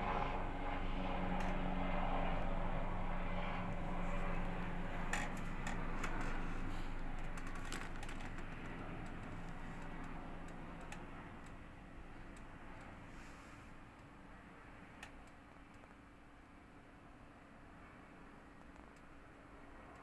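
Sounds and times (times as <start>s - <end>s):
distant vehicle engine hum: 0.0s - 15.8s.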